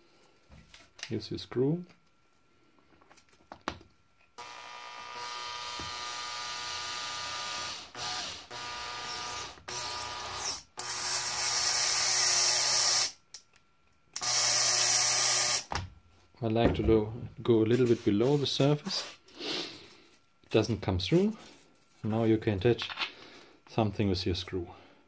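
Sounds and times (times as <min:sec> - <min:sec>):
drill motor whirring: 0:04.4 - 0:13.2, 0:14.2 - 0:15.7.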